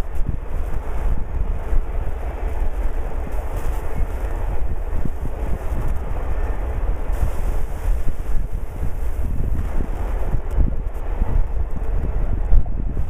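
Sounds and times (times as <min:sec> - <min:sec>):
train cars rolling on rails: 0:00.0 - 0:12.4
wind buffeting microphone: 0:00.0 - 0:13.0.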